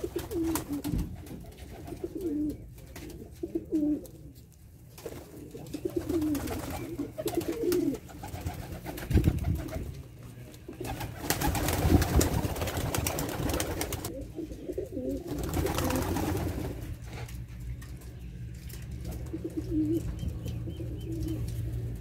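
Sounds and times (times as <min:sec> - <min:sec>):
wings flapping: 0:00.0 - 0:03.8, 0:04.9 - 0:10.0, 0:10.7 - 0:14.1, 0:15.1 - 0:18.0
pigeons cooing: 0:00.0 - 0:04.4, 0:05.0 - 0:10.0, 0:10.6 - 0:17.3, 0:18.8 - 0:22.0.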